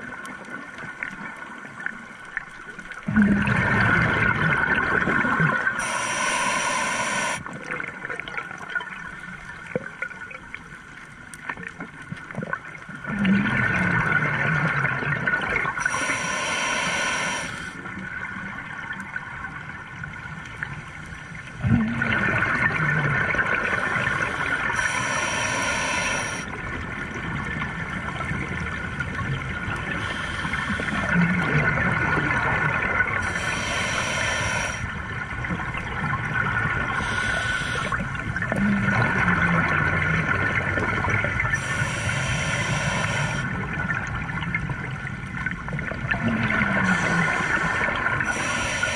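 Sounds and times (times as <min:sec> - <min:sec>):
exhaust bubbles underwater: 0:00.0 - 0:05.8, 0:11.6 - 0:15.9, 0:21.4 - 0:48.9
scuba regulator inhale hiss: 0:05.8 - 0:07.5, 0:15.8 - 0:17.9, 0:23.7 - 0:26.5, 0:29.9 - 0:31.2, 0:33.2 - 0:35.0, 0:37.0 - 0:38.1, 0:41.5 - 0:43.5, 0:46.8 - 0:48.9.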